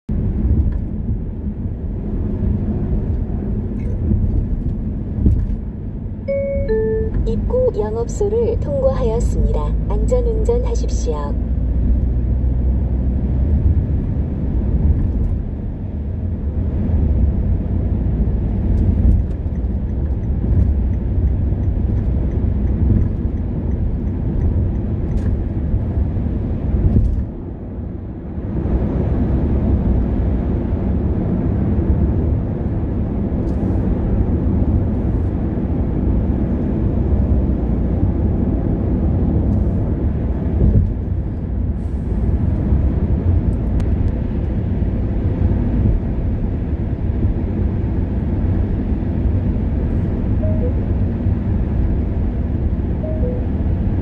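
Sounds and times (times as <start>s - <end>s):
car engine hum: 0.1s - 54.0s
road and tyre noise: 0.1s - 54.0s.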